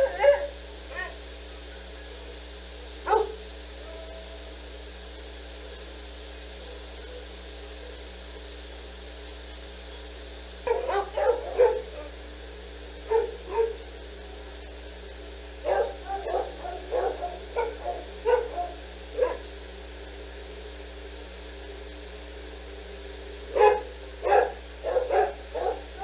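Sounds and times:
dog barking: 0.0 - 1.2, 3.0 - 4.3, 10.7 - 12.2, 13.0 - 13.8, 15.6 - 19.5, 23.5 - 26.0
low room hum: 0.0 - 26.0.

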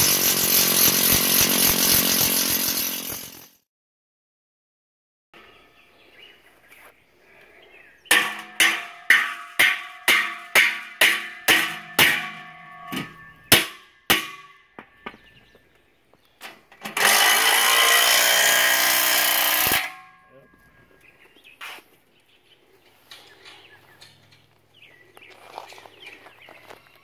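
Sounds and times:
power drill boring: 0.0 - 3.5, 16.8 - 20.0
hammer striking steel: 8.1 - 15.3, 19.4 - 20.3.

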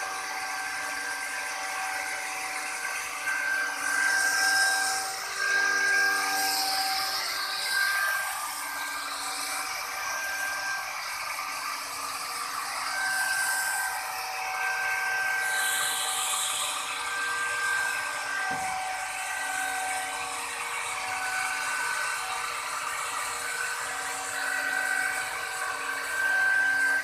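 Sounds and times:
router motor whining: 0.0 - 27.0
hiss of wood being cut: 14.8 - 27.0.

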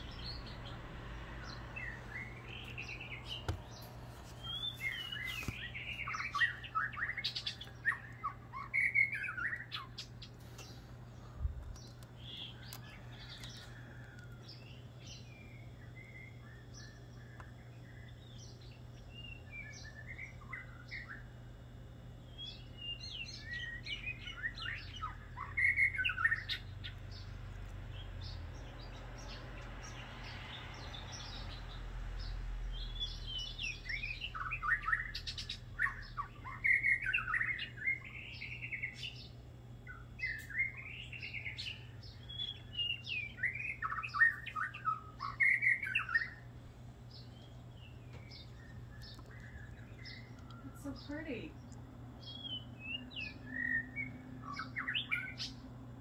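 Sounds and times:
songbirds singing: 0.0 - 56.0.

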